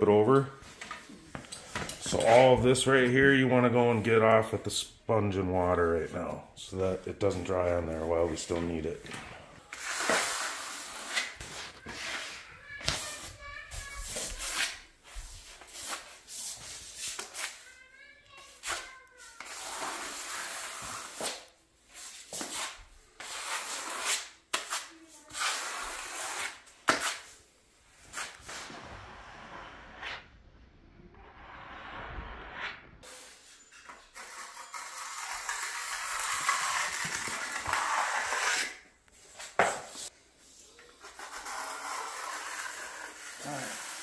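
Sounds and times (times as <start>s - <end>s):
trowel scraping wet cement: 9.7s - 12.4s, 32.1s - 38.8s, 41.0s - 44.0s.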